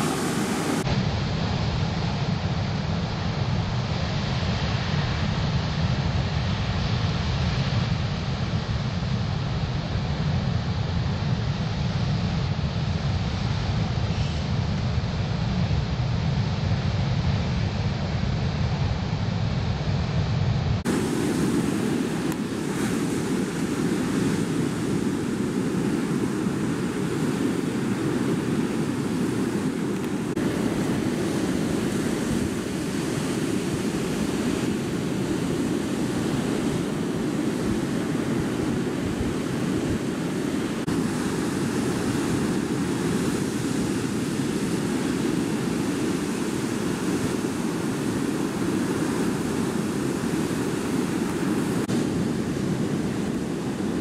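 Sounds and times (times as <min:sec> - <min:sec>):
breaking surf rushing: 0:00.0 - 0:01.9, 0:20.8 - 0:54.0.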